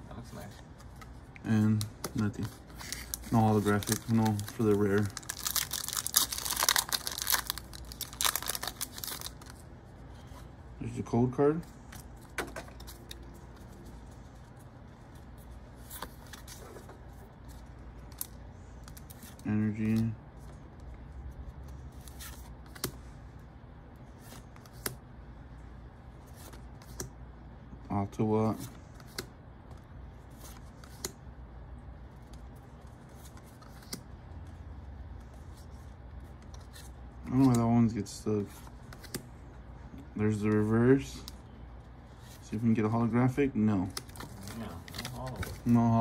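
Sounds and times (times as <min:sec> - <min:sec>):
low steady hum: 0:00.0 - 0:46.0
cards clicking and sliding: 0:33.1 - 0:34.1, 0:38.9 - 0:39.3.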